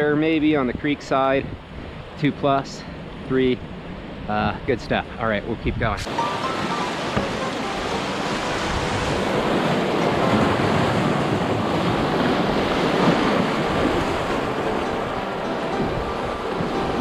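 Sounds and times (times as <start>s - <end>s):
creek rushing over rocks: 6.1s - 17.0s.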